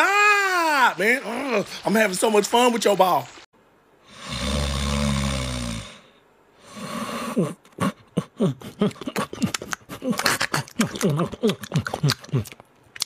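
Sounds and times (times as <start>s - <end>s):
puppy snoring: 4.1s - 6.1s.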